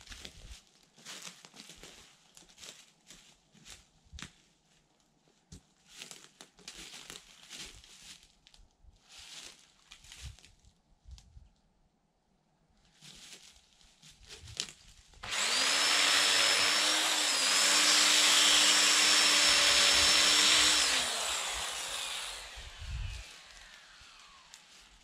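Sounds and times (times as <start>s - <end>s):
chainsaw cutting wood: 15.2s - 25.0s.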